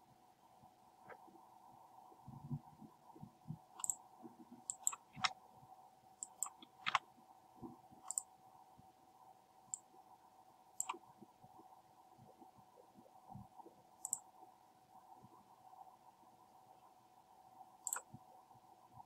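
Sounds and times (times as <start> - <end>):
faint steady hum: 0.0 - 19.0
computer mouse and keyboard clicks: 3.8 - 4.0, 4.7 - 5.4, 6.2 - 7.1, 8.0 - 8.3, 10.8 - 11.0, 14.0 - 14.2, 17.8 - 18.1.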